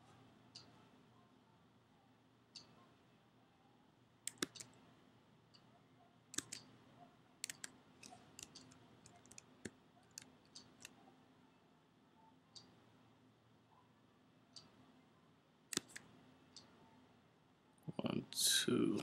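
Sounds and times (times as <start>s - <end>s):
faint low hum: 0.0s - 19.0s
mouse and keyboard clicks: 4.3s - 4.8s, 6.4s - 6.7s, 7.4s - 11.0s, 15.7s - 16.7s.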